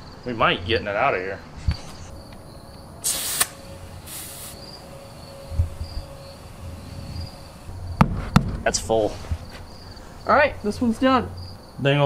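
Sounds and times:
crickets chirping: 0.0 - 12.0
air chuck hissing: 1.5 - 10.4.

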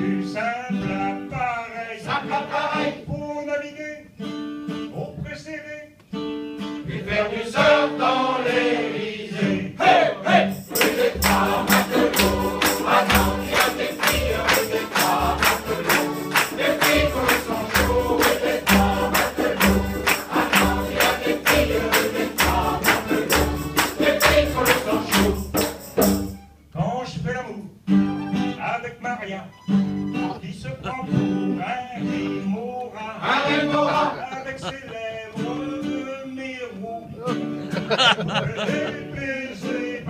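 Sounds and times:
choir singing: 2.0 - 3.1, 6.8 - 25.9, 33.1 - 34.7
sharp percussive strikes: 10.5 - 26.4.

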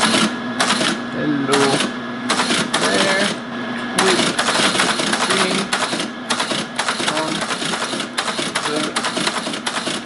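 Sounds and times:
teletype clattering: 1.6 - 3.4, 4.0 - 10.0.

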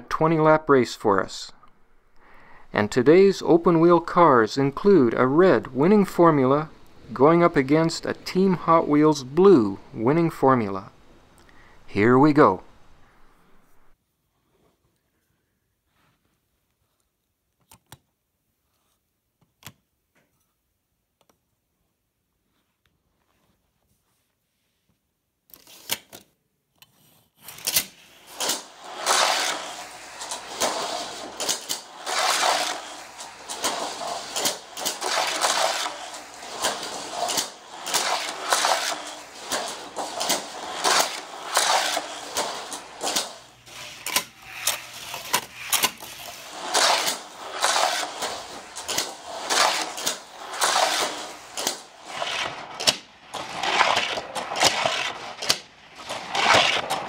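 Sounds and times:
toy car booster whirring clatter: 26.8 - 57.0.

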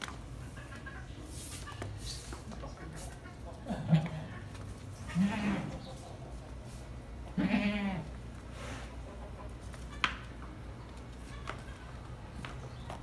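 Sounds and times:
goat kids bleating: 3.8 - 6.0, 7.2 - 8.3.

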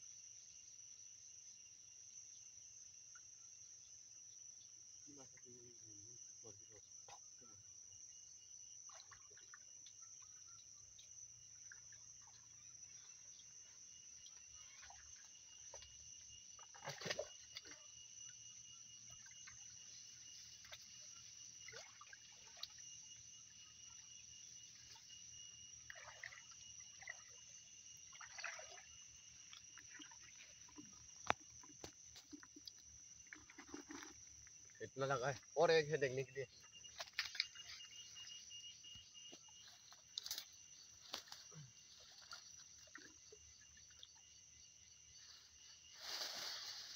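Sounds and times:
insects chirring: 0.0 - 46.9
water splashing and trickling: 8.8 - 10.0, 10.9 - 38.5, 39.4 - 45.1.

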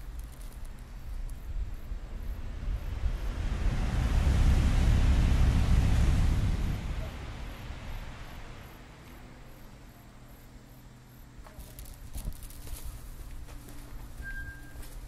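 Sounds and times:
low steady hum: 0.0 - 15.0
rushing noise: 1.8 - 9.0
footsteps on paved walkway: 11.4 - 15.0.

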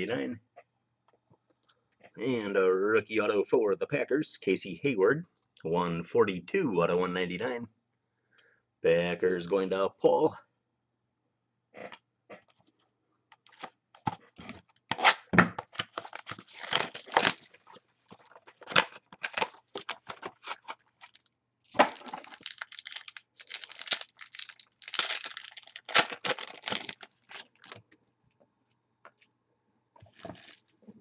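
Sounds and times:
cardboard tearing and crinkling: 15.8 - 27.8, 30.1 - 30.7.

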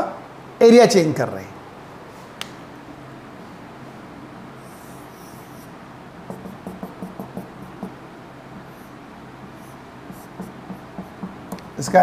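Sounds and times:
marker squeaking on whiteboard: 4.4 - 12.0
marker tapping strokes: 4.4 - 12.0.

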